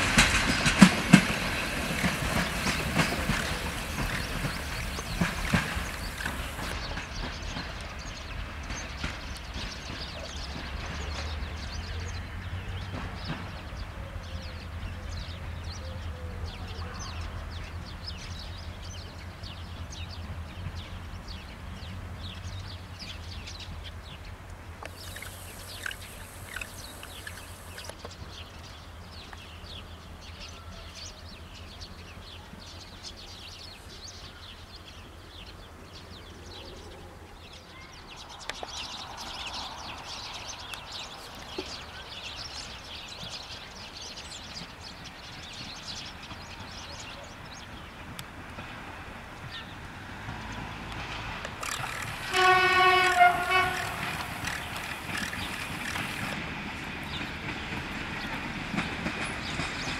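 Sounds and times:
train engine hum: 0.0s - 30.3s, 31.3s - 59.9s
approaching train rumble: 0.0s - 59.9s
small birds chirping: 0.1s - 15.3s, 20.8s - 35.5s, 50.5s - 56.5s, 57.1s - 59.9s.

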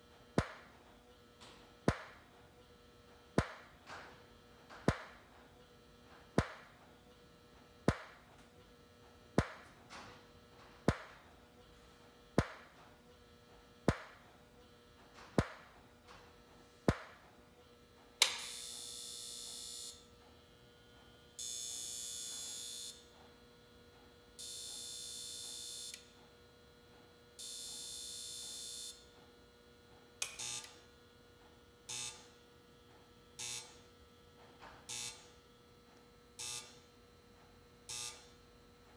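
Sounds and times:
strobe light popping: 1.8s - 2.3s, 3.4s - 3.8s, 6.4s - 6.8s, 7.8s - 8.3s, 9.4s - 9.8s, 13.8s - 14.2s
electrical buzzes: 34.9s - 35.5s, 36.3s - 36.8s, 37.9s - 38.3s.

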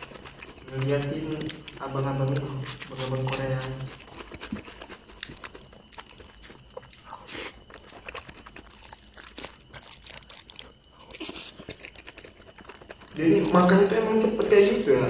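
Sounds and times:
man chewing and smacking: 0.0s - 13.6s.

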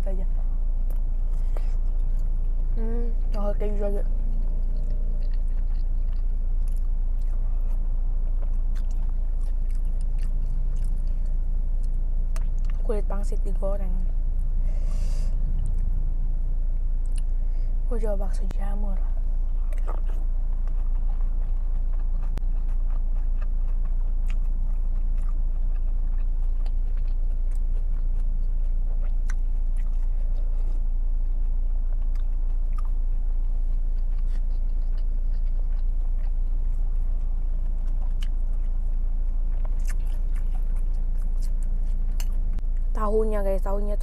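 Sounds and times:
person chewing and eating: 0.9s - 12.9s, 17.0s - 17.4s, 19.3s - 42.9s.

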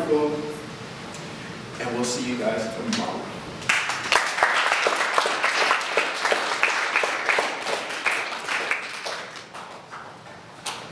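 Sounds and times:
audience applauding: 3.7s - 10.4s.

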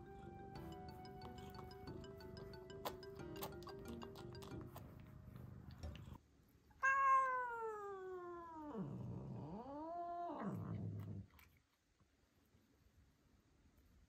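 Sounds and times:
kitten growling: 6.8s - 11.5s.

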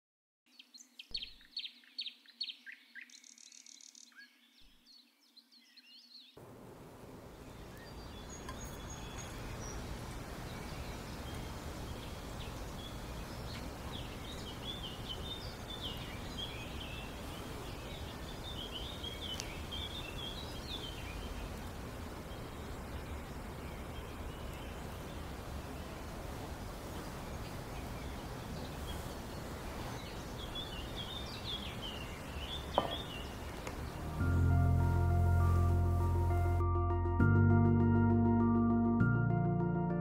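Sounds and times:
small birds chirping: 0.5s - 6.4s, 7.0s - 35.1s
steady background hiss: 6.4s - 36.6s.

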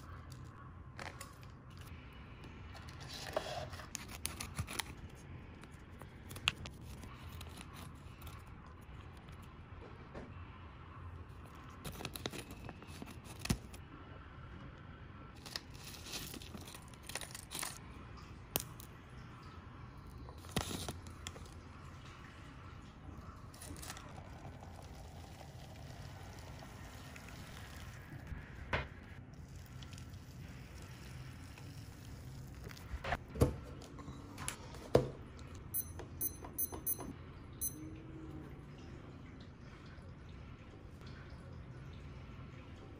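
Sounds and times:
plastic sachets crinkling: 15.4s - 17.8s
short high electronic beeps: 35.7s - 37.8s.

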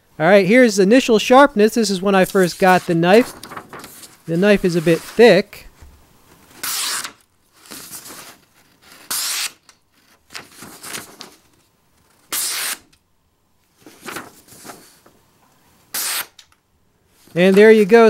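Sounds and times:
paper rustling: 2.0s - 5.4s, 6.3s - 12.2s, 13.8s - 15.2s
knife slicing paper: 6.6s - 9.6s, 12.3s - 12.9s, 15.9s - 16.4s.

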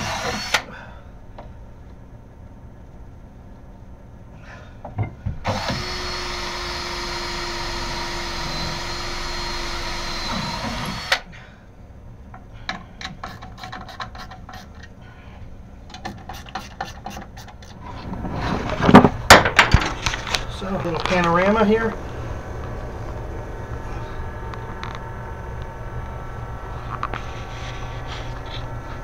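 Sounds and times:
cordless drill whining: 0.0s - 0.7s, 5.5s - 11.3s.

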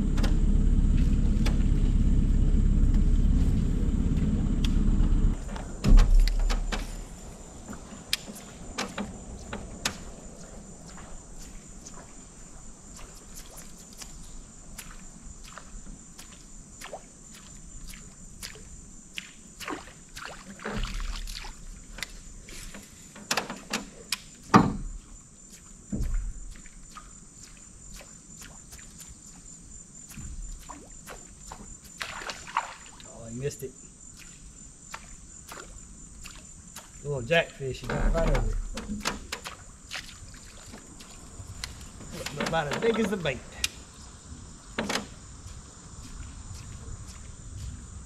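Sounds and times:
dull knocks: 5.4s - 7.0s.

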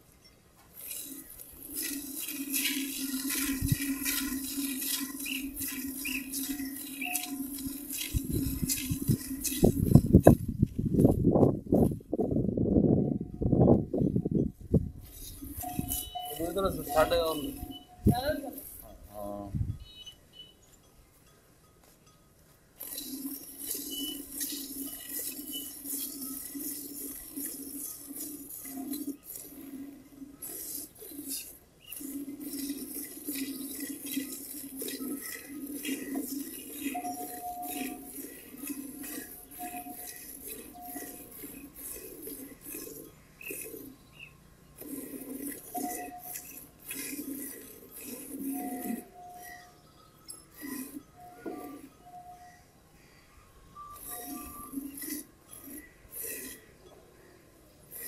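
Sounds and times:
milk squirting into metal pot: 0.8s - 10.4s, 22.8s - 49.2s.

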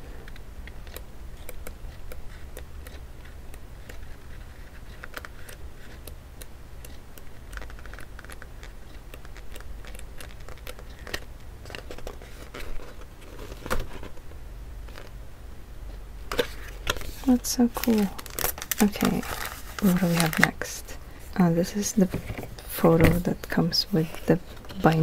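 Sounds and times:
steady low hum: 0.0s - 25.0s
book pages riffling: 0.2s - 6.1s, 7.4s - 14.3s, 16.3s - 20.7s.

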